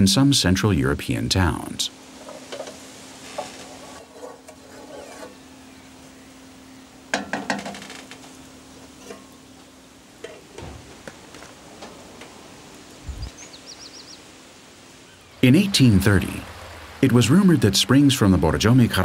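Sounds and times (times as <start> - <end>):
wooden spoon scraping a metal pot: 3.3 - 5.4.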